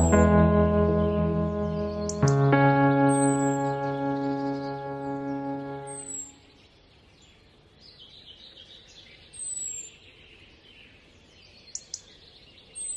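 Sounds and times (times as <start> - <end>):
background music: 0.0 - 6.4
birds chirping: 0.0 - 7.4.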